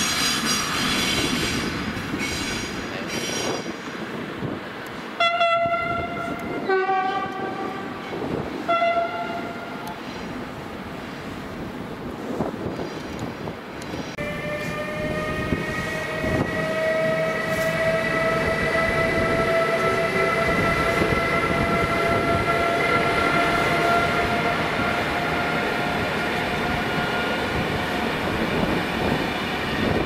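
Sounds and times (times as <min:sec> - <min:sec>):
rail noise rumble: 0:00.0 - 0:30.0
electric locomotive whine: 0:13.8 - 0:30.0.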